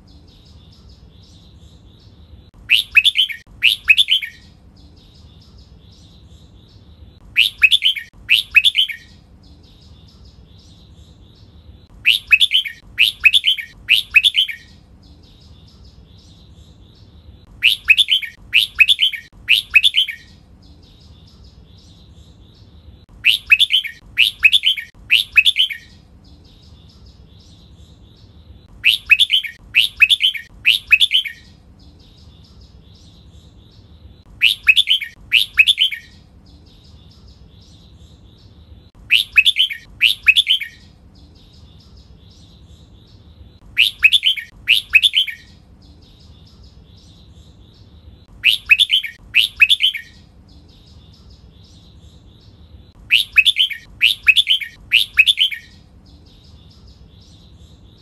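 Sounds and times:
faint bird twittering: 0.0 - 58.0
bird whistling song phrase: 2.7 - 4.5, 7.4 - 9.2, 12.0 - 14.8, 17.6 - 20.4, 23.2 - 26.0, 28.8 - 31.5, 34.4 - 36.2, 39.1 - 40.9, 43.8 - 45.6, 48.4 - 50.2, 53.1 - 55.8.

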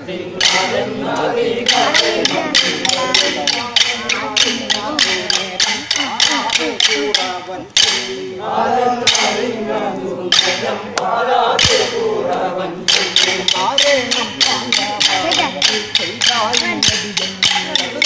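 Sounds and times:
men singing a chant: 0.0 - 18.0
wooden sticks clacking: 0.4 - 0.8, 1.6 - 8.2, 9.0 - 9.5, 10.3 - 10.7, 11.6 - 12.0, 12.9 - 18.0.

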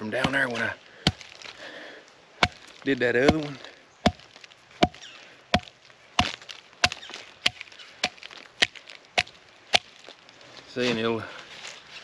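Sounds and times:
wood splitting: 0.0 - 1.8, 2.4 - 10.2.

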